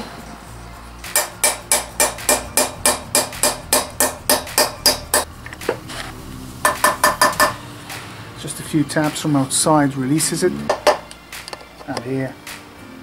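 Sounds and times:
hammer tapping on metal: 1.1 - 5.3, 6.6 - 7.6, 10.7 - 11.1.

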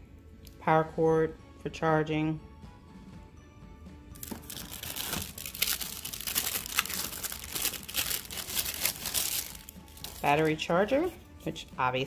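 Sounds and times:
plastic bag crinkling: 4.2 - 10.6.

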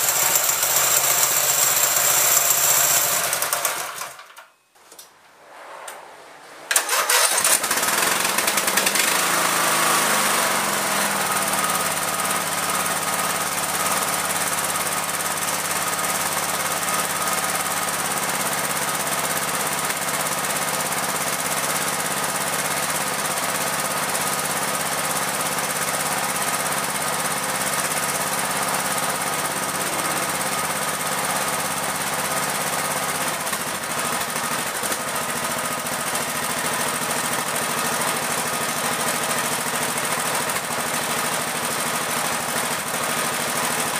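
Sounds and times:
mower engine running: 0.0 - 4.3, 6.7 - 43.9
engine cranking: 6.7 - 9.1.

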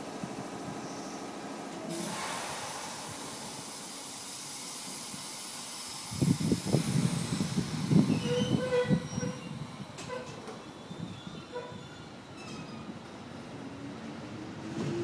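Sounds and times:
electric train rumbling: 0.0 - 15.0
steady hiss: 1.9 - 8.2.

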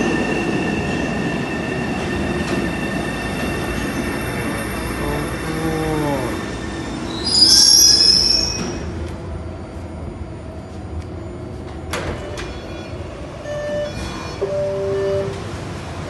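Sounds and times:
subway train motor whine: 0.0 - 16.0
train rumble: 0.0 - 16.0
high-pitched brake squeal: 6.2 - 8.9, 12.2 - 15.5.

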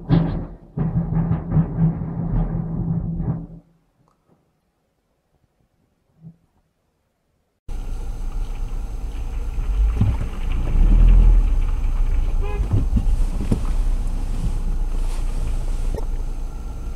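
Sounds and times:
car engine idling: 7.7 - 16.9.

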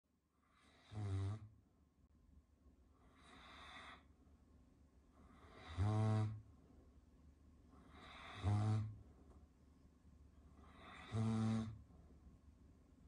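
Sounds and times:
dog snoring: 0.4 - 1.5, 3.0 - 4.1, 5.2 - 6.4, 7.8 - 9.0, 10.6 - 11.8.

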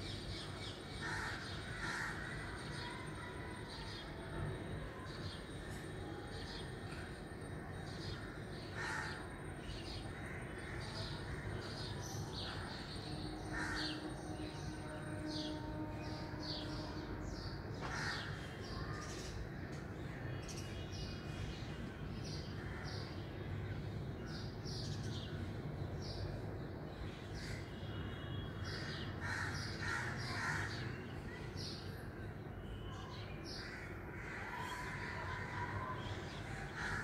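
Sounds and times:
harsh bird calls: 28.7 - 31.4, 33.0 - 37.0.

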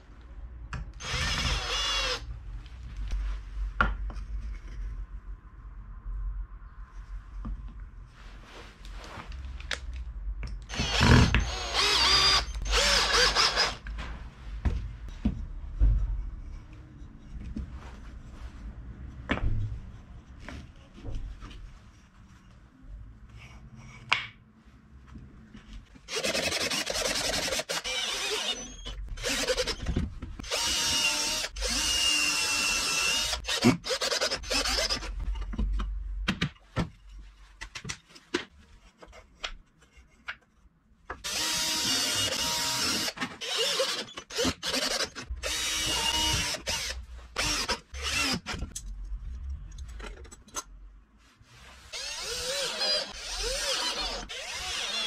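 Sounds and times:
power drill running: 1.0 - 2.2, 10.7 - 13.8, 26.1 - 35.1, 41.2 - 48.4, 52.0 - 55.0.

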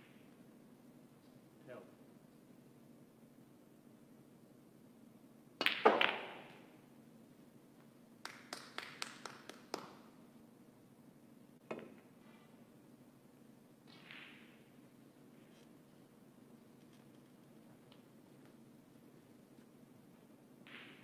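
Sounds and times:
cue striking ball: 5.6 - 6.6, 13.9 - 14.7
snooker balls clicking: 13.8 - 14.7.

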